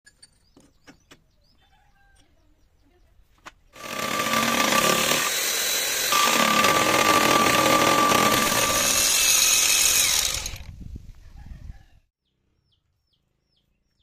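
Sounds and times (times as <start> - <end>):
milling attachment high whine: 6.1 - 10.6.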